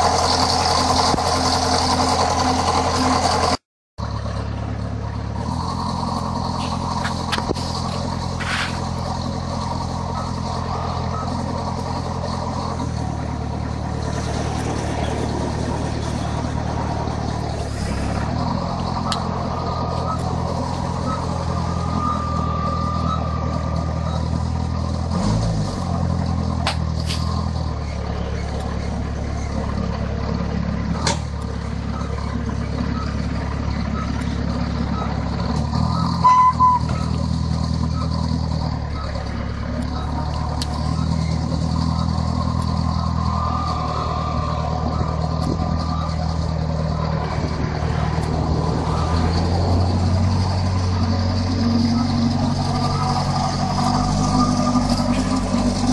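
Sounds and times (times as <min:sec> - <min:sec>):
forklift engine running: 0:00.0 - 0:55.9
loud high beep: 0:35.9 - 0:37.1.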